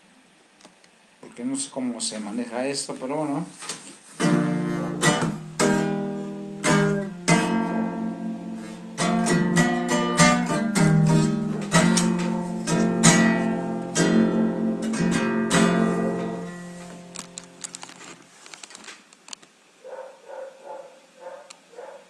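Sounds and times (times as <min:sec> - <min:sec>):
acoustic guitar strumming: 0:04.2 - 0:17.8.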